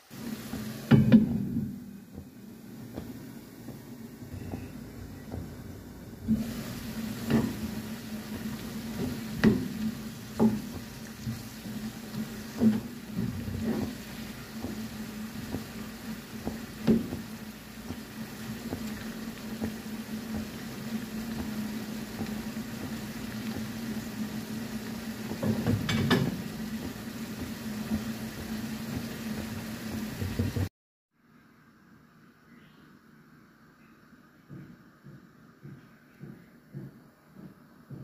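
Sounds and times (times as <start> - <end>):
noodles bubbling and sizzling: 0.0 - 30.7
spatula knocking against pan: 7.2 - 15.8, 25.3 - 27.5.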